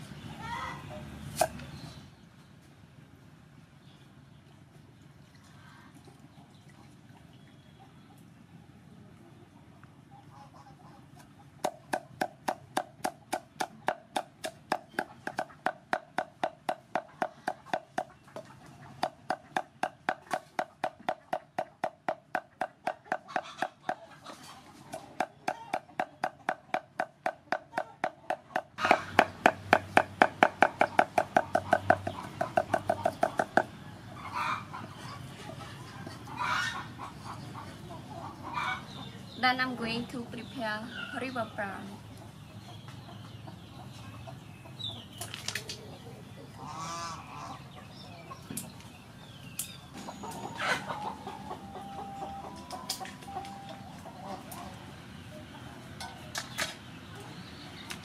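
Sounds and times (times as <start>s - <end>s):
cleaver chopping on wooden board: 11.6s - 18.1s, 19.0s - 24.0s, 25.2s - 33.7s.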